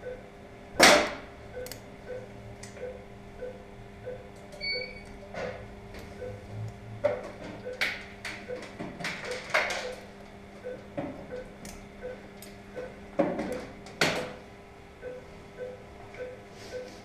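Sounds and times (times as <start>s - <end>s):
patient monitor beeping: 0.0s - 0.3s, 1.5s - 6.5s, 7.2s - 13.8s, 15.0s - 17.0s
steady electrical hum: 0.0s - 17.0s
surgical instruments clicking: 11.3s - 12.6s.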